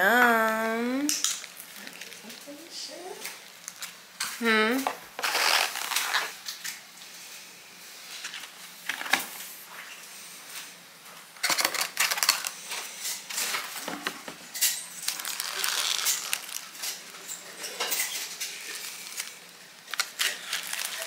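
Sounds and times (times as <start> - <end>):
small hard objects clattering: 5.2 - 6.6, 11.4 - 21.0.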